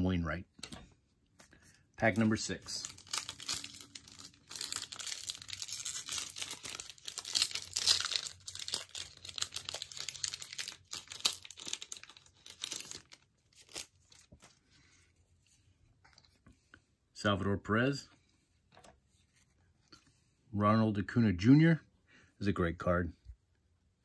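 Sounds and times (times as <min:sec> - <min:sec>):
wrapper crinkling and tearing: 0:02.1 - 0:14.6.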